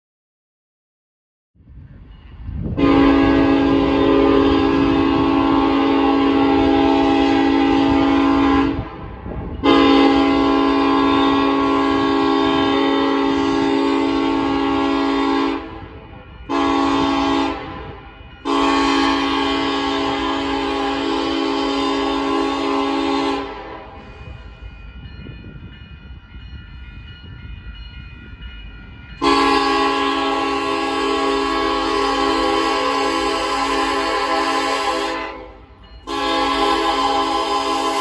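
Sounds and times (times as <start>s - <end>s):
locomotive air horn blasts: 2.8s - 9.0s, 9.6s - 24.4s, 29.2s - 38.0s.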